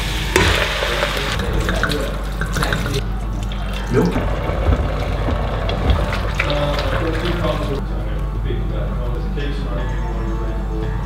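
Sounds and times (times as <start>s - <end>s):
wine pouring into pot: 0.4s - 7.8s.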